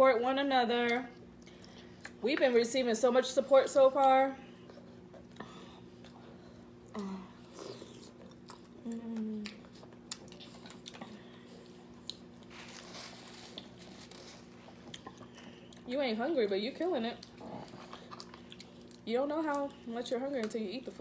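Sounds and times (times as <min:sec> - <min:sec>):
wet chewing and lip smacking: 0:00.8 - 0:02.2, 0:04.0 - 0:15.9, 0:17.0 - 0:20.6
person humming: 0:08.8 - 0:09.6
paper napkin rustle: 0:12.5 - 0:14.6.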